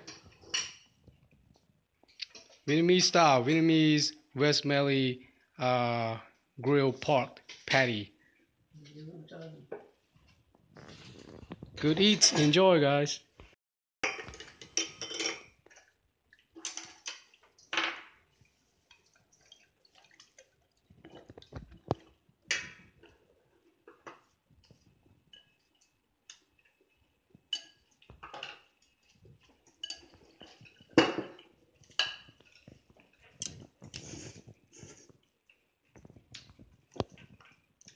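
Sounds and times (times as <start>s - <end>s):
tableware clinking and knocking: 0.0s - 1.0s, 11.8s - 12.6s, 14.0s - 15.6s, 16.6s - 18.2s, 27.5s - 34.1s.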